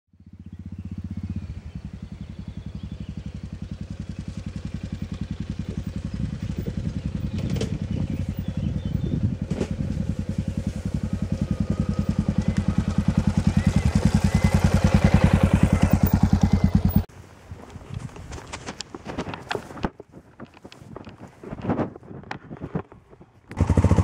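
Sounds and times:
motorcycle engine thumping: 0:00.6 - 0:17.1, 0:23.5 - 0:24.0.

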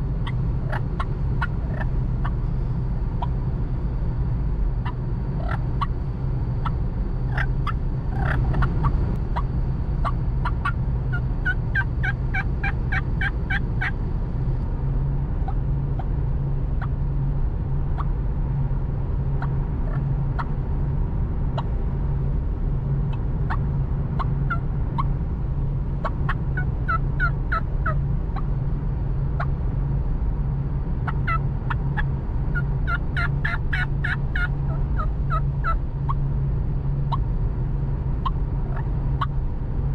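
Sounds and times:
car road rumble: 0:00.0 - 0:39.9
turkey call yelping: 0:00.2 - 0:02.4, 0:04.8 - 0:05.9, 0:06.6 - 0:14.0, 0:26.3 - 0:28.0, 0:31.2 - 0:31.8, 0:32.5 - 0:35.8.

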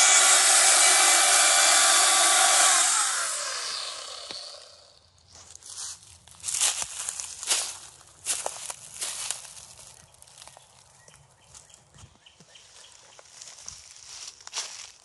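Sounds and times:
chainsaw cutting wood: 0:00.0 - 0:05.0
rustling in dry leaves: 0:02.9 - 0:11.0, 0:12.6 - 0:15.0.

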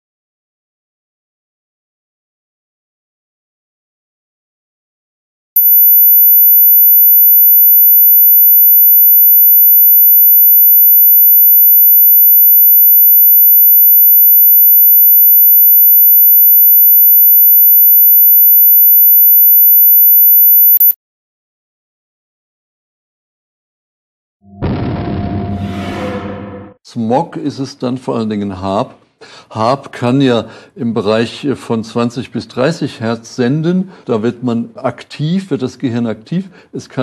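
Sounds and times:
high-pitched sine tone: 0:05.6 - 0:21.0, 0:24.5 - 0:26.5.

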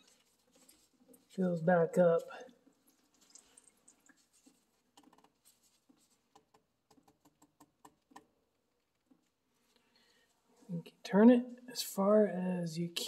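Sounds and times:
faint plastic clicks and scratches: 0:02.6 - 0:08.3.

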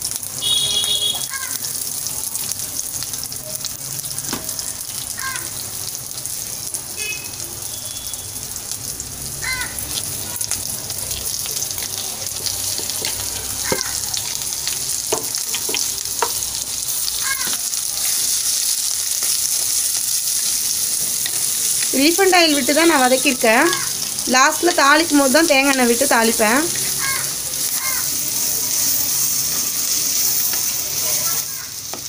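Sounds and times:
onions sizzling in oil: 0:00.0 - 0:32.0
wooden spatula knocking pot: 0:15.1 - 0:16.4.

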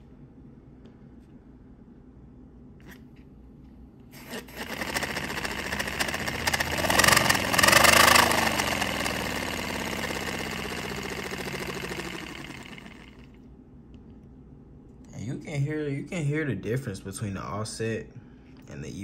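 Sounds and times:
model air engine exhaust puffs: 0:04.2 - 0:13.2.

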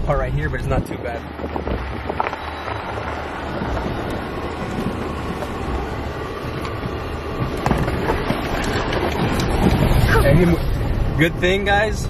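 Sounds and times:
tyres and suspension rumbling: 0:00.0 - 0:12.0
vehicle knocks: 0:03.6 - 0:10.0.

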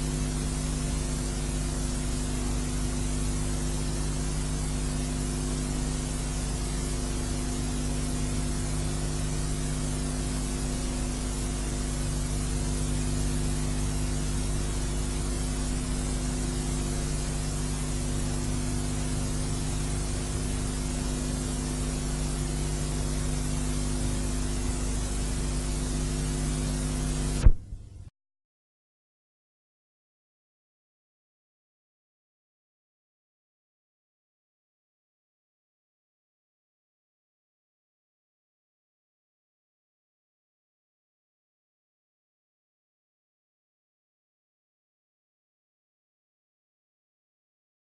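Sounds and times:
steady hum with hiss: 0:00.0 - 0:28.1.

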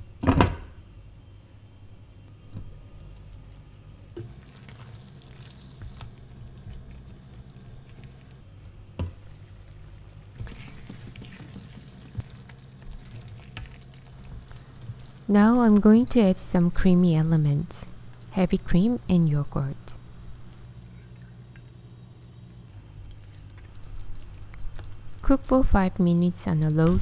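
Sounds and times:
steady low hum: 0:00.0 - 0:27.0
sauce simmering in pot: 0:02.6 - 0:08.4, 0:09.1 - 0:16.5, 0:19.6 - 0:26.1.

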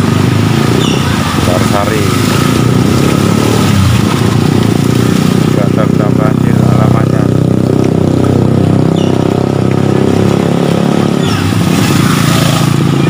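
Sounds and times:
tyres throwing water: 0:00.0 - 0:06.8, 0:09.6 - 0:13.0
small motorcycle engine running: 0:00.0 - 0:13.0.

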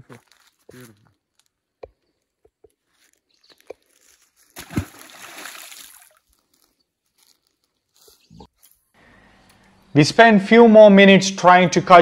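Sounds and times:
splash into river water: 0:04.6 - 0:06.2.

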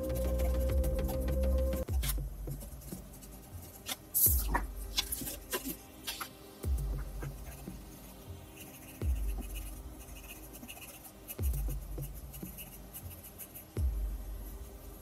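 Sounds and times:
music with deep beat: 0:00.0 - 0:08.3, 0:08.9 - 0:15.0
pencil scratching on paper: 0:07.2 - 0:13.8.

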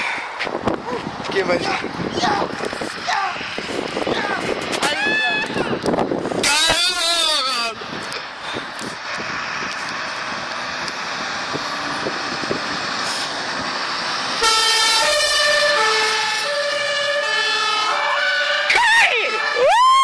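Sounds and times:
fire engine two-tone siren: 0:14.2 - 0:20.0.

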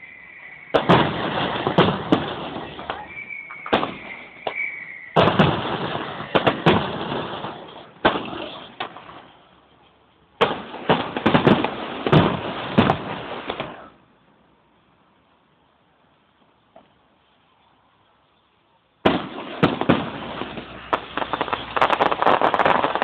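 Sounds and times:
fireworks bursting and crackling: 0:00.0 - 0:09.6, 0:10.4 - 0:14.0, 0:19.0 - 0:23.0.

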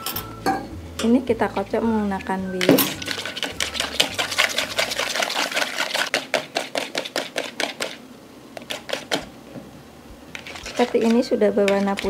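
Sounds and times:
whisk clicking against bowl: 0:02.6 - 0:08.0, 0:08.6 - 0:09.3, 0:10.3 - 0:12.0.

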